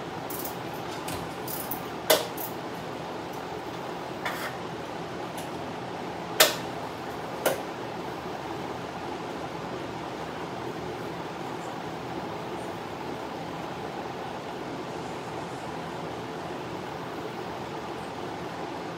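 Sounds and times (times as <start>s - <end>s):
drum fan running: 0.0s - 18.9s.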